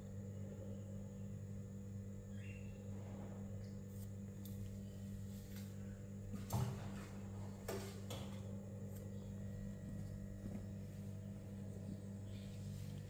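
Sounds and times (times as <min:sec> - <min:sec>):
low hum: 0:00.0 - 0:13.0
cats scuffling: 0:05.2 - 0:13.0.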